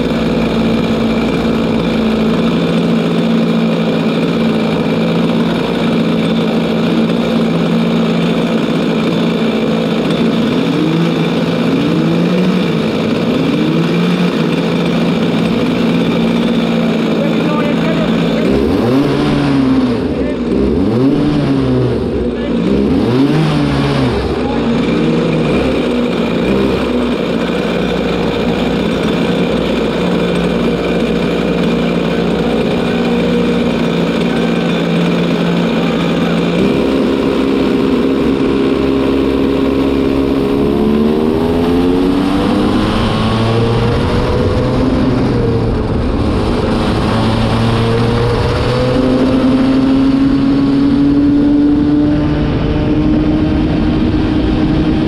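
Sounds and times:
kart engine revving: 0.0s - 55.0s.

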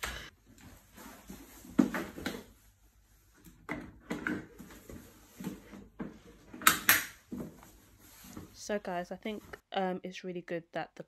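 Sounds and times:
soft knocks and rustles: 0.5s - 2.8s, 7.2s - 8.6s.

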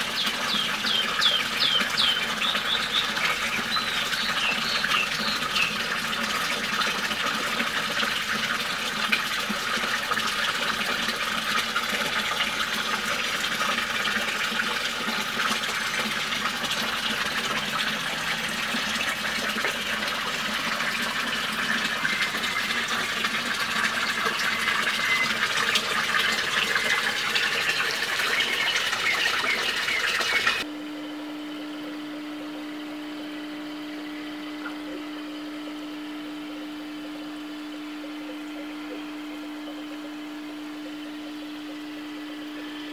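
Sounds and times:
water running and splashing: 0.0s - 30.7s
steady low hum: 30.6s - 42.9s.

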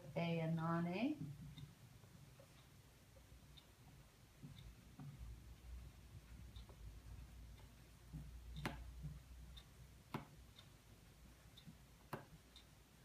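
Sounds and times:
faint ticking: 0.0s - 13.0s.

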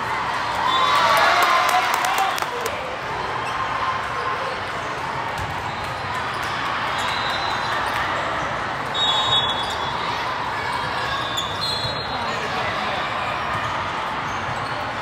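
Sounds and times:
shoe squeaks: 8.9s - 10.0s, 10.7s - 12.4s.

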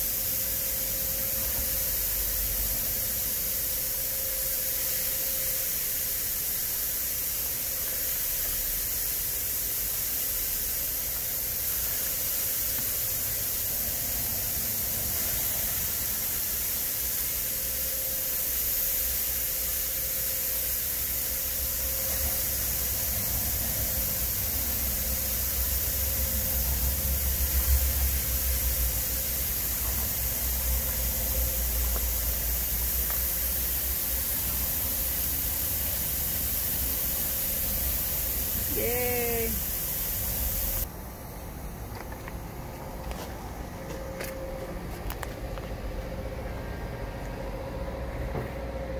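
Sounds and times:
meat sizzling on grill: 21.0s - 40.9s.

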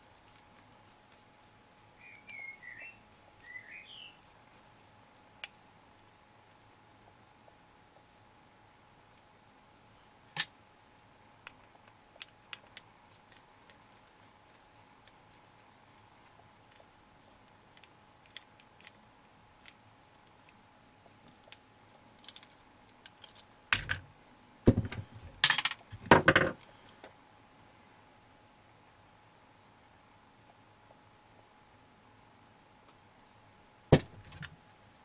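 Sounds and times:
screwdriver and plastic parts clicking: 17.7s - 19.0s
knocks and clatter: 24.7s - 26.6s.

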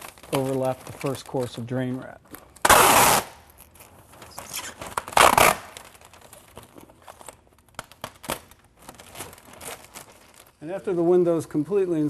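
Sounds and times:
tape and wrap rustling: 0.0s - 12.0s
tape ripping off roll: 2.5s - 10.2s.

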